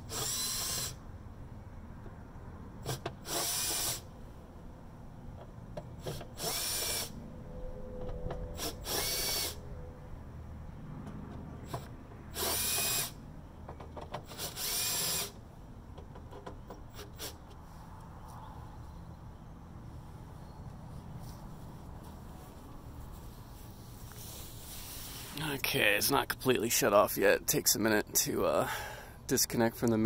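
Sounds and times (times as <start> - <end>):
cordless drill running: 0.1 - 1.0, 2.8 - 4.1, 6.4 - 7.1, 8.6 - 9.6, 12.3 - 13.2, 14.3 - 15.4.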